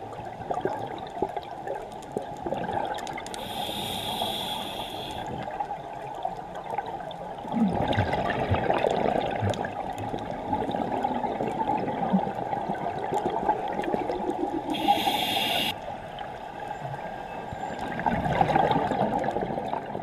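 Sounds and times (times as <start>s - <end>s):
bubbles gurgling underwater: 0.0s - 3.6s, 5.3s - 15.7s, 17.6s - 20.0s
steady water noise: 0.0s - 20.0s
regulator hiss: 3.4s - 5.2s, 14.7s - 15.8s.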